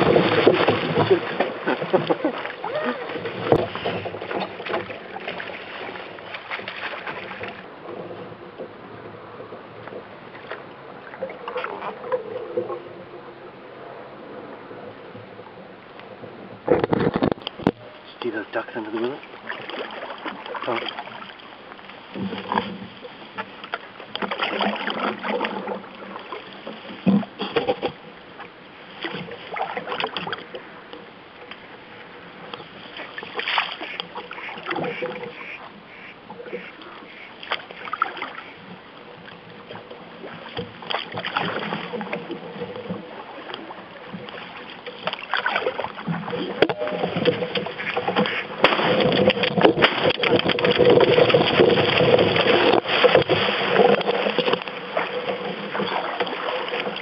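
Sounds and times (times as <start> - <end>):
paddle strokes: 0.0 - 57.0
water splashing against hull: 0.0 - 57.0
branches rustling: 39.8 - 57.0.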